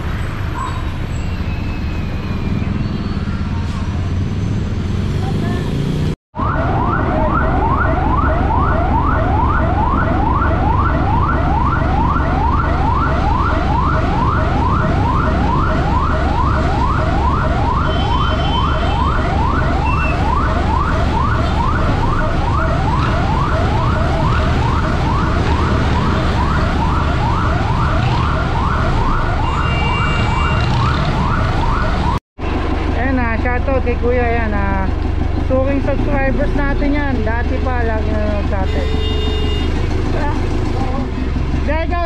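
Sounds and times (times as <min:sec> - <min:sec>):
electronic siren yelping: 0:06.4 - 0:32.2.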